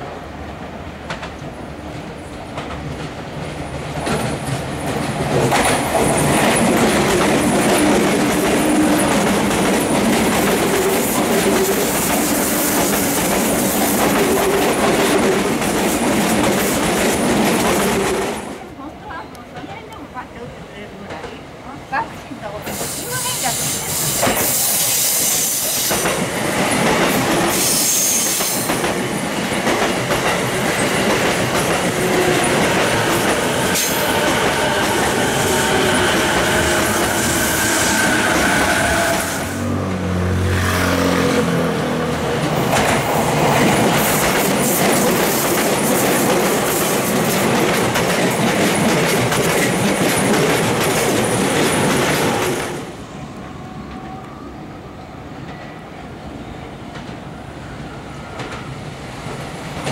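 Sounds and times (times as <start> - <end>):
distant train: 0.0 - 59.9
electric train passing: 0.0 - 59.9
train wheel squeal: 22.6 - 26.2, 27.1 - 28.9, 32.1 - 39.6.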